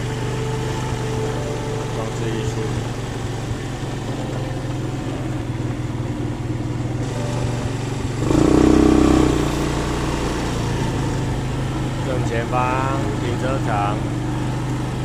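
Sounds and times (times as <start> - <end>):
road and air noise: 0.0 - 15.0
scooter motor hum: 0.0 - 15.0.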